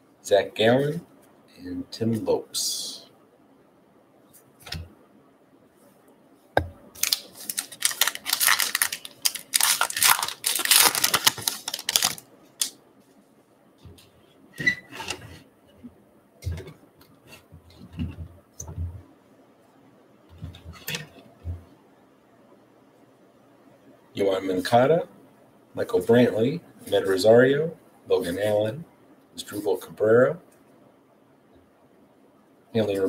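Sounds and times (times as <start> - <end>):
wrapper tearing and crinkling: 7.0 - 12.7.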